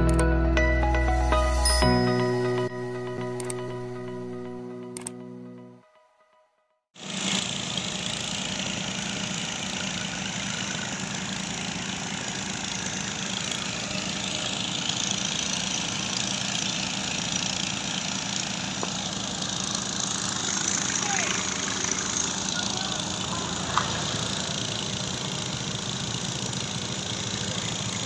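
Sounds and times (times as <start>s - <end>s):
engine running steadily: 7.0s - 28.0s.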